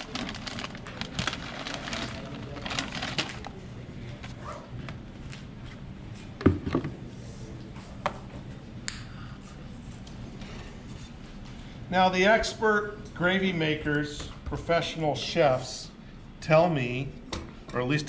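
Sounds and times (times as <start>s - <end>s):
plastic bag crinkling: 0.0s - 3.6s.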